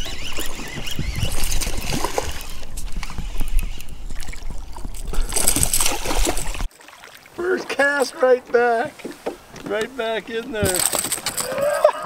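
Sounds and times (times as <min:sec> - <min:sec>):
fish splashing and thrashing in water: 0:00.0 - 0:07.4.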